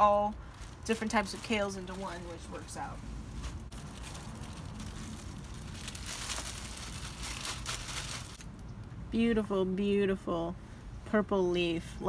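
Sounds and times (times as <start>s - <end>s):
plastic bag crinkling: 0.0s - 8.6s.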